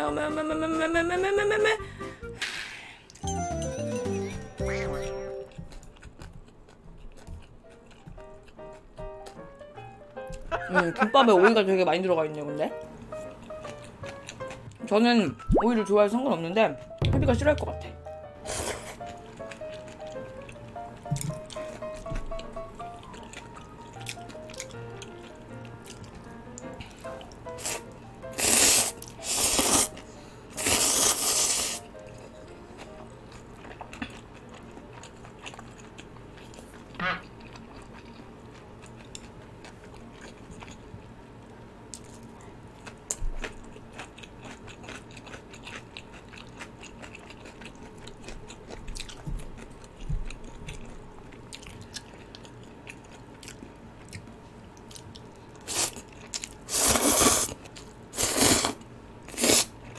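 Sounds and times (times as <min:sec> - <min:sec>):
chewing and crunching: 0:05.4 - 0:10.5, 0:13.1 - 0:15.0, 0:18.4 - 0:27.9, 0:30.7 - 0:59.9.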